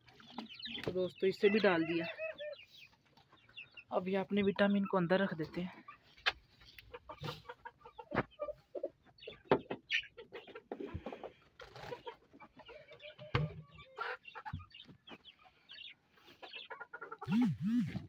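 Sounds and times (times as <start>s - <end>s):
chickens clucking: 0.0s - 18.0s.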